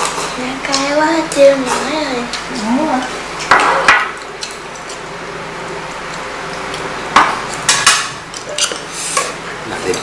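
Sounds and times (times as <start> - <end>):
cutlery clinking on dishes: 7.7 - 8.9.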